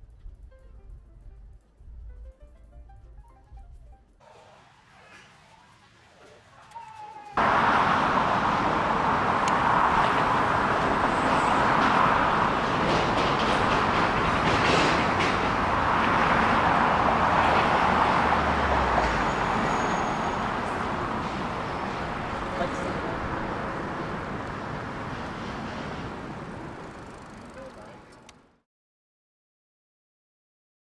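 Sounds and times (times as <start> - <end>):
vehicle road and wind noise: 0.0 - 28.6.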